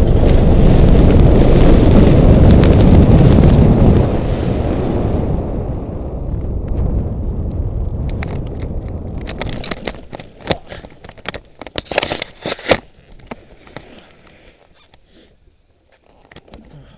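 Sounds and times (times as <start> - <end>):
wind buffeting microphone: 0.0 - 12.4
camera scraping on dry grass: 8.4 - 15.0.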